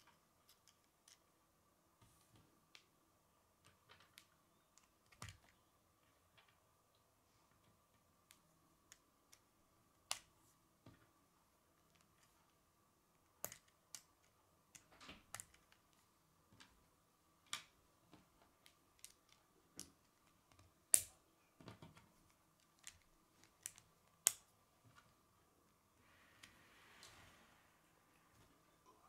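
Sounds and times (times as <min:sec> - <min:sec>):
plastic construction pieces clicking: 0:18.6 - 0:24.5.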